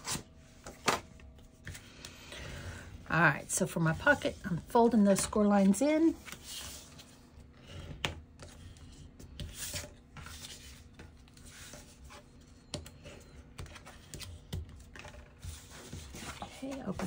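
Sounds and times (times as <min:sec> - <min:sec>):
cardstock rustling and scraping: 0:13.1 - 0:17.0.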